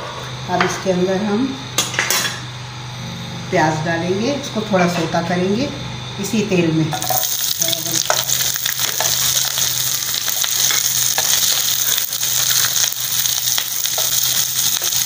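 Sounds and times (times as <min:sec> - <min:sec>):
onions sizzling in oil: 0:07.0 - 0:15.0.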